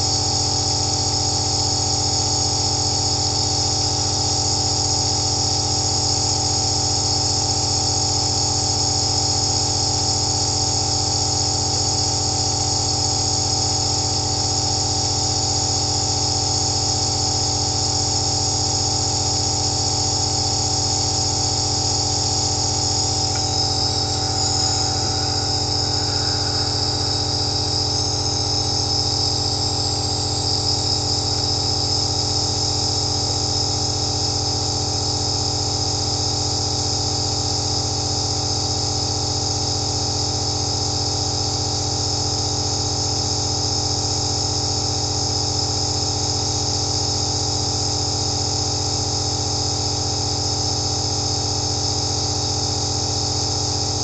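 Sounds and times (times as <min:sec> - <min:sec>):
nebulizer motor hum: 0:00.0 - 0:39.1
hiss of air through mask: 0:23.2 - 0:28.4.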